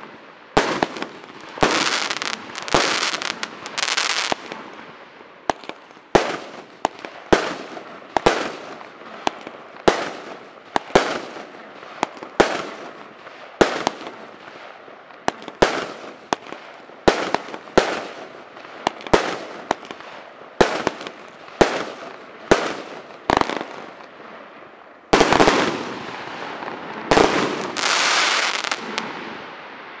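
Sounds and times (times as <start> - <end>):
fireworks crackling: 0.0 - 30.0.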